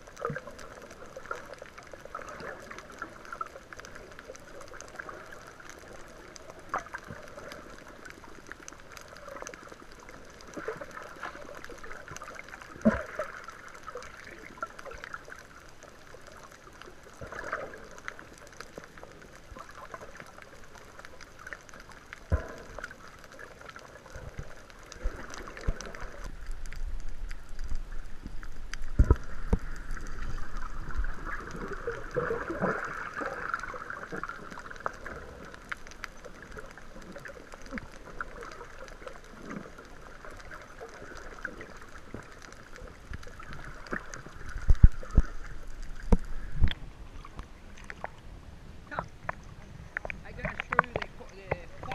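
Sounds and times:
water sloshing: 17.1 - 51.9.

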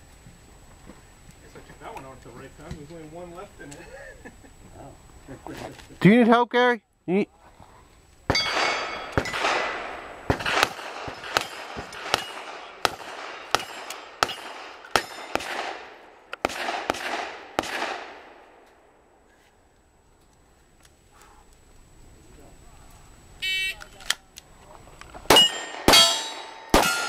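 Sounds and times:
steel targets ringing: 8.3 - 15.5, 25.3 - 27.0
rapid gunshots: 8.3 - 18.3.

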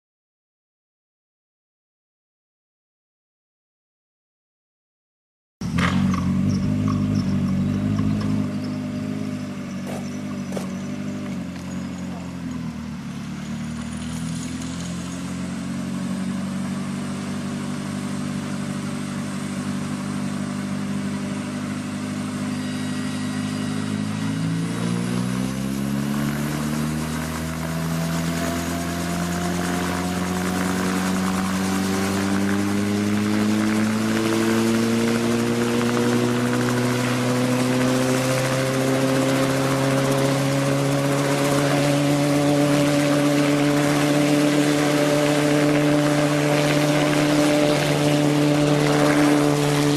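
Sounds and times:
helicopter engine and rotor: 16.8 - 49.9.

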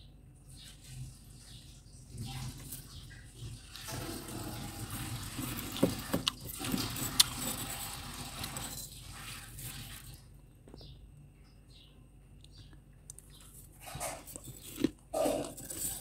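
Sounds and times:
spoon scraping freezer frost: 3.7 - 10.2, 13.3 - 16.0.

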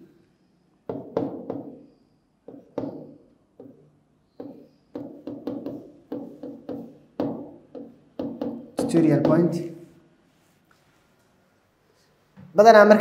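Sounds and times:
pen tip tapping on writing board: 4.4 - 9.4.

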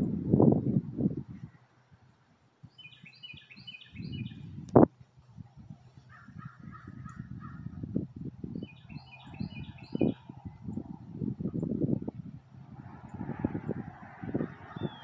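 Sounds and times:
wild birds calling: 6.0 - 7.9, 8.6 - 10.6, 12.7 - 15.0.

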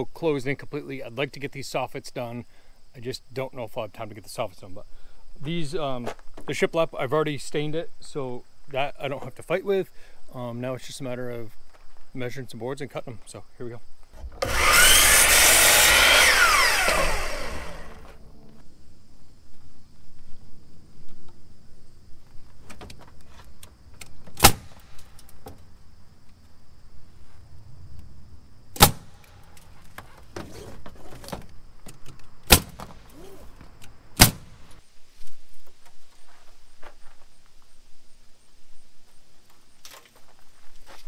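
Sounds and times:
nail gun shots: 24.4 - 25.1, 28.8 - 29.3, 32.5 - 33.2, 34.2 - 34.6.

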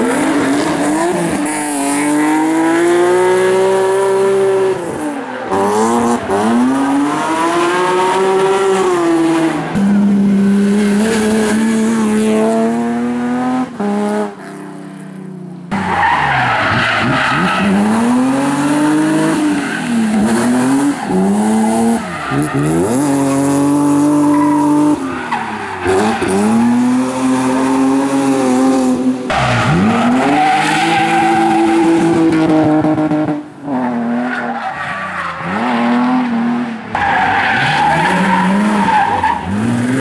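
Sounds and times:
tyres squealing and skidding: 15.7 - 27.9, 29.3 - 32.3, 34.2 - 40.0.

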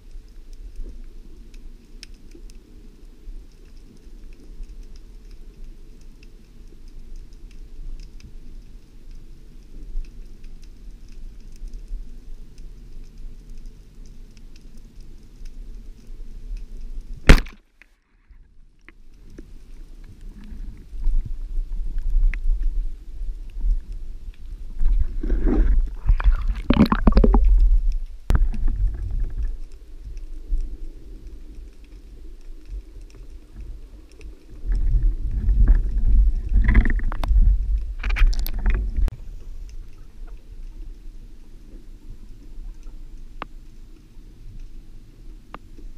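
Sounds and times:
speargun firing crack: 17.3 - 17.6
underwater low rumble: 18.1 - 45.9
rushing bubbling water: 24.7 - 29.7, 33.8 - 39.1.

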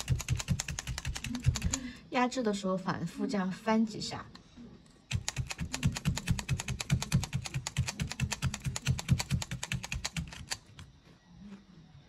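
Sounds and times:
felting needle stabbing: 0.0 - 1.9, 5.1 - 10.8.

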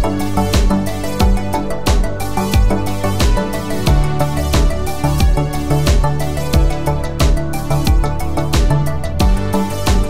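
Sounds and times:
music with steady beat: 0.0 - 10.0.

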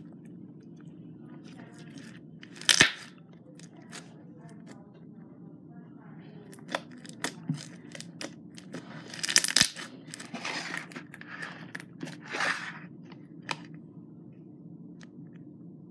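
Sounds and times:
slime popping and crackling: 1.7 - 4.1, 6.5 - 12.2.

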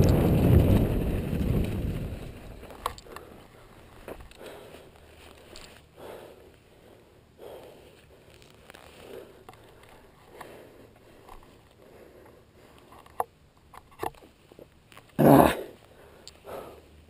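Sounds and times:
person breathing hard: 4.3 - 13.0, 15.4 - 17.0.

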